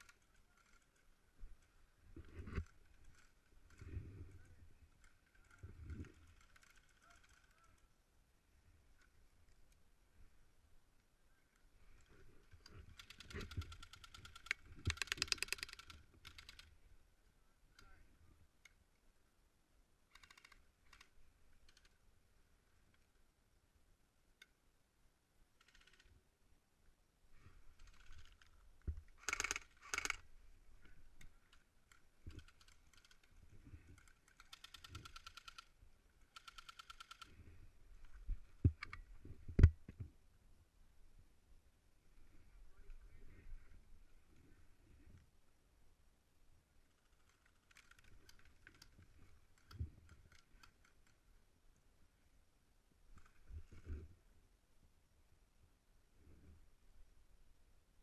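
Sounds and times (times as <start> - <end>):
rustling: 0.0 - 7.9.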